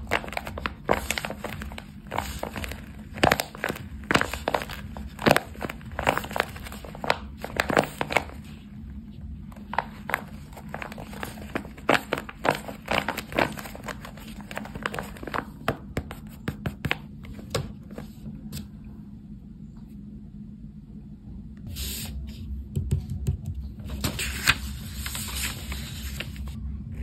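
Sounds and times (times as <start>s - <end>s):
paper and tape crinkling: 0.0s - 8.6s, 9.6s - 16.9s, 23.9s - 26.6s.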